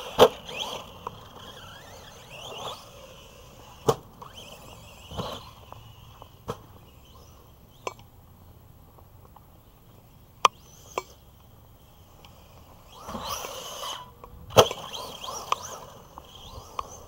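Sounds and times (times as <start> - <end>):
tires spraying dirt: 0.0 - 7.6
electric motor whine: 0.0 - 8.0, 9.6 - 17.0.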